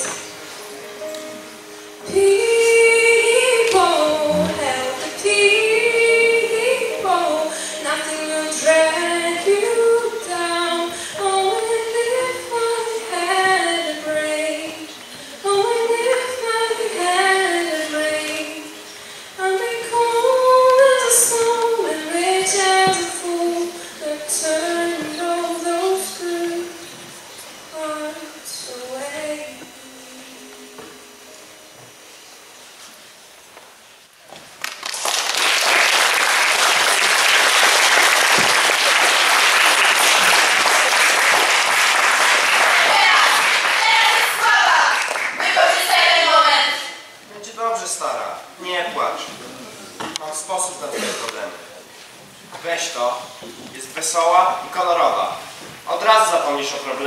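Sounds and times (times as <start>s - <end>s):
woman singing into microphone: 2.0s - 18.8s, 19.4s - 27.0s, 27.7s - 31.0s.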